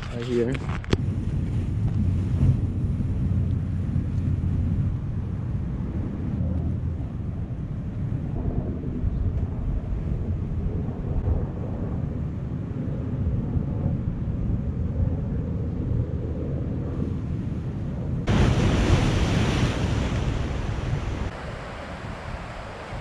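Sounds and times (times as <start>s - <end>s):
low surf: 0.0s - 23.0s
wind rumbling on microphone: 0.0s - 23.0s
waves rushing through rocks: 18.3s - 23.0s.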